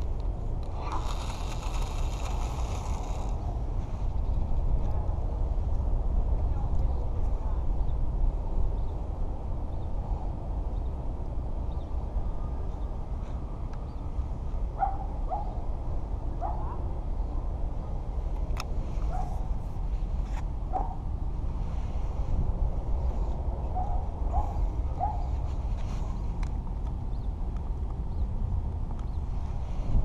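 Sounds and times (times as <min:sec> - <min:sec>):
wind rumble on microphone: 0:00.0 - 0:30.0
sharp clicks: 0:00.2 - 0:03.4.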